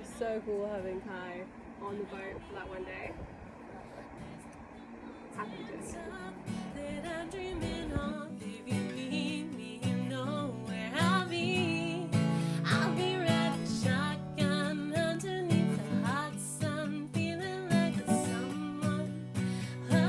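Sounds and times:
acoustic guitar strumming: 0:00.0 - 0:20.0
woman singing: 0:05.4 - 0:20.0.

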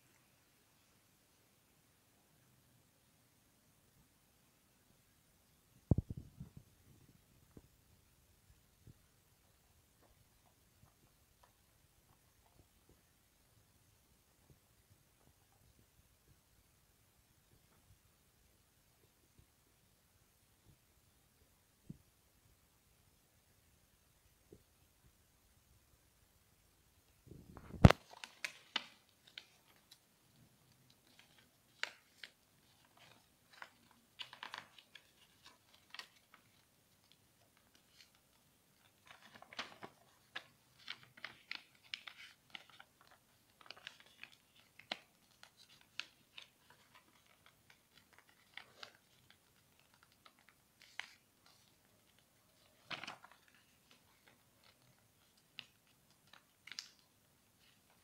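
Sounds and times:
paper rustling and crinkling: 0:27.6 - 0:58.0.

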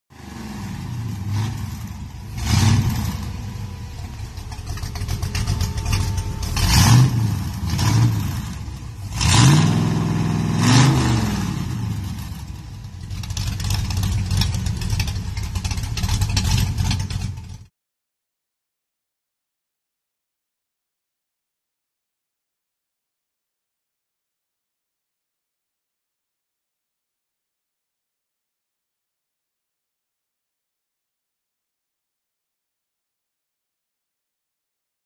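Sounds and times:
pickup truck engine revving: 0:00.2 - 0:17.6.

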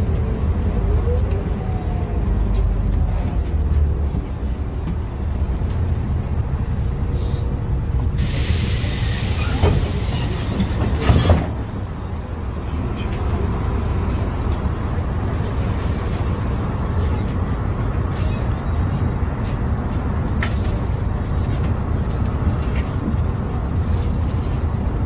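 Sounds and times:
bus engine and road rumble: 0:00.0 - 0:25.0
loud air hiss: 0:08.2 - 0:11.2.

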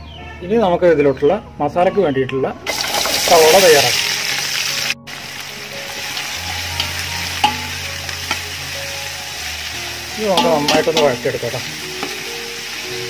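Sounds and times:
onions sizzling in hot oil: 0:02.7 - 0:13.0.

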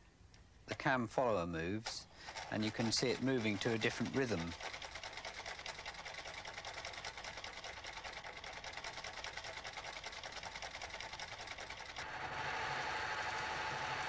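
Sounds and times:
sewing machine clattering: 0:02.2 - 0:12.1
sewing machine whirr with low hum: 0:02.2 - 0:14.0.

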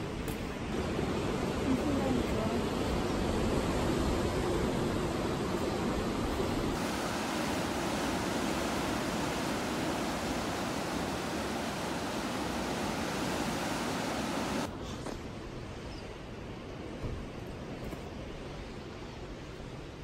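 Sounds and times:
outdoor background: 0:00.0 - 0:20.0
waves breaking on rocks: 0:06.7 - 0:14.7.

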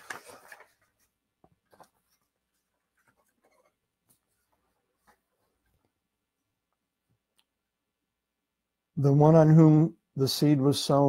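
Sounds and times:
paper rustling and tapping: 0:00.0 - 0:06.0.

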